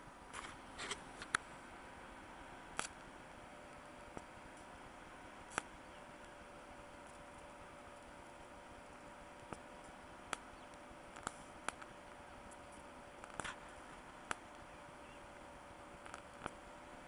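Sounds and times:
electric arc snaps: 0:05.4 - 0:14.7, 0:16.0 - 0:16.6.

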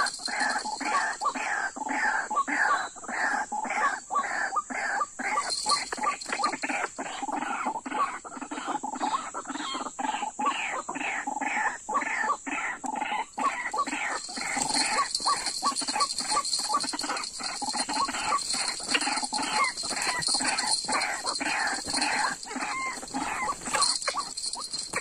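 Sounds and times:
waterhen calls: 0:00.0 - 0:02.2, 0:05.2 - 0:07.6, 0:12.6 - 0:25.0.

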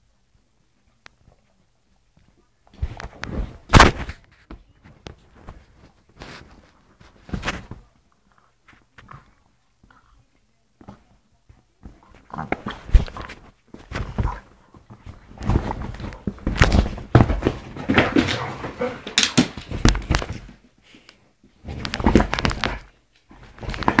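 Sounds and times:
cushions rustling: 0:11.8 - 0:20.6
dogs scuffling: 0:11.8 - 0:20.6
thuds of bodies and paws: 0:11.8 - 0:20.6.

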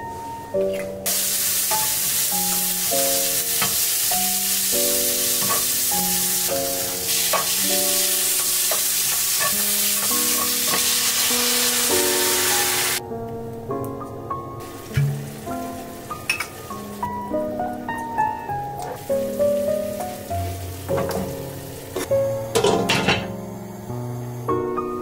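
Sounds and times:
soft piano-like background music: 0:00.0 - 0:25.0
food sizzling in hot oil: 0:01.1 - 0:13.0, 0:14.6 - 0:17.4, 0:18.8 - 0:24.0.

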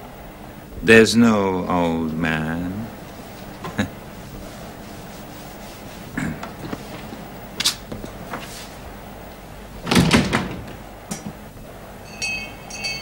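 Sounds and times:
knocks and clatter: 0:09.8 - 0:11.5
bell-like chimes: 0:12.0 - 0:13.0.

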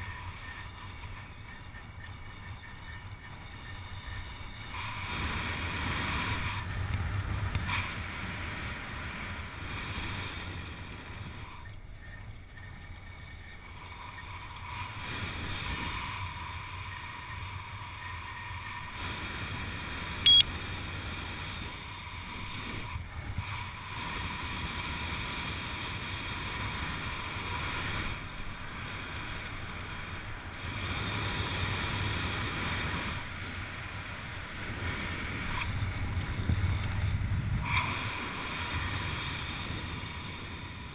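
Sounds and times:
wind rushing over microphone: 0:18.9 - 0:40.9.

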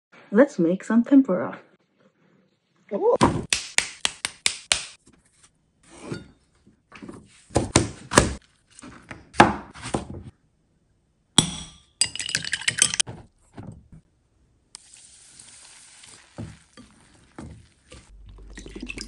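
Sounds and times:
knife chopping on plastic board: 0:07.5 - 0:08.4.

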